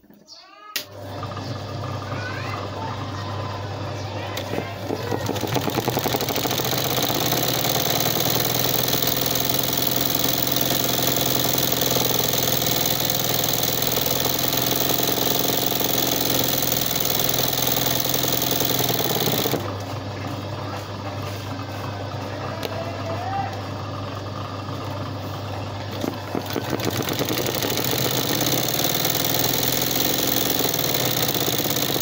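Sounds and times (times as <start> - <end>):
embroidery sewing machine needle clatter: 4.4 - 19.8, 25.9 - 32.0.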